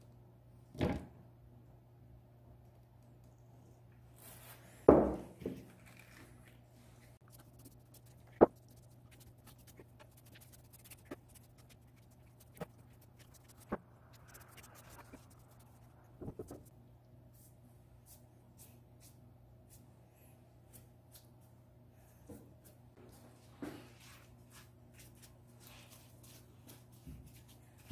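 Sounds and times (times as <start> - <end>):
low room tone hum: 0.0 - 27.9.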